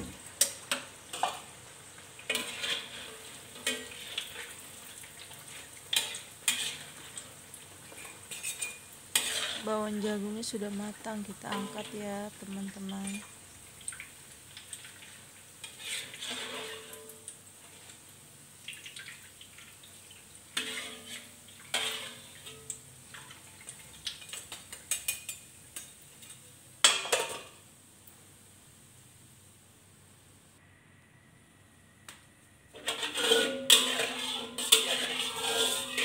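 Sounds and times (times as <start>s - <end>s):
faint oil sizzling: 0.0s - 31.2s, 31.8s - 36.0s
metal utensils clinking on wok: 2.3s - 4.6s, 5.9s - 7.2s, 7.9s - 9.8s, 11.4s - 13.3s, 20.6s - 22.8s, 24.2s - 27.5s, 32.8s - 36.0s.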